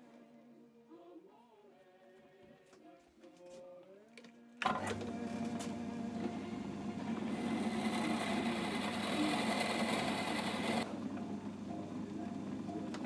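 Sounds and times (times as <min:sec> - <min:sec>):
lathe running with motor hum: 0:04.6 - 0:13.0.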